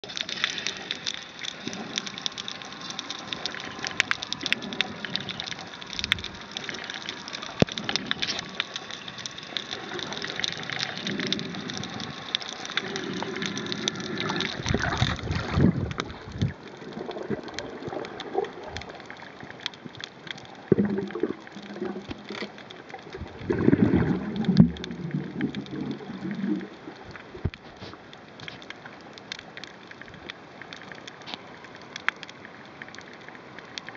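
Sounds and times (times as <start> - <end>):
bubbling and gurgling: 0.0 - 27.6
underwater clicks and pops: 19.6 - 26.7.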